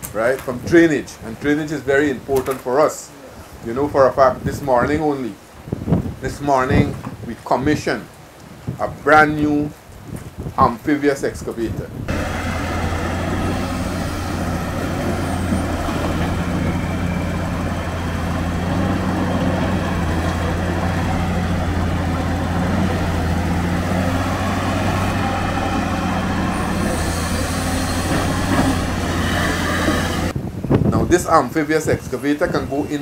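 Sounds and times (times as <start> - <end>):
diesel engine droning: 12.1 - 30.4.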